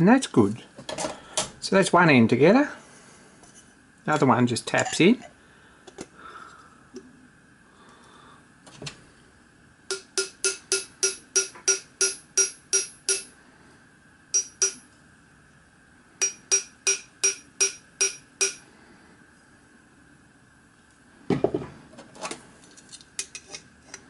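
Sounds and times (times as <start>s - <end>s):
hammer tapping metal plate: 9.9s - 13.3s, 14.4s - 14.8s, 16.2s - 18.6s.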